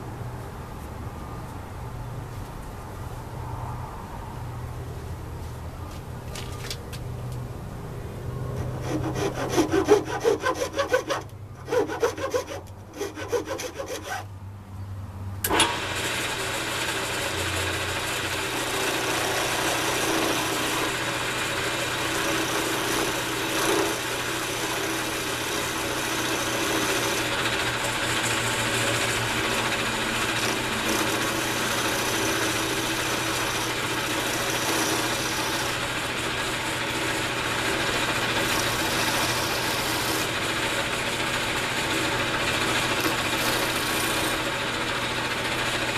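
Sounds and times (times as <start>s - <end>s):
tool scraping wood on lathe: 8.5s - 14.2s, 16.0s - 45.9s
lathe motor humming: 8.6s - 14.2s, 15.5s - 45.9s.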